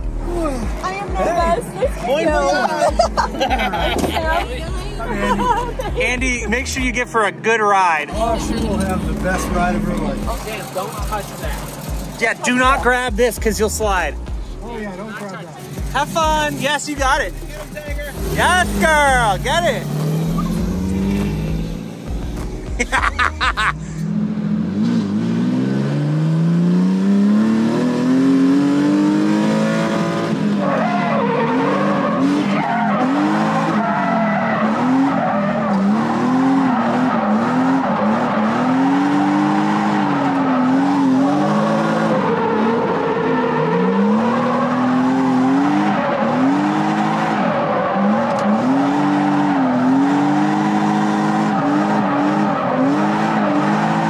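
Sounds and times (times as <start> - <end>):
car engine revving hard: 8.1 - 11.8, 15.8 - 54.0.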